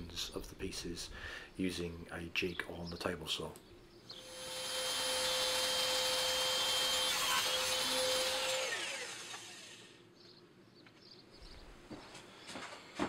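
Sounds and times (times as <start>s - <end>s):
saw blade spinning down: 4.1s - 10.0s
table saw whining: 4.1s - 10.0s.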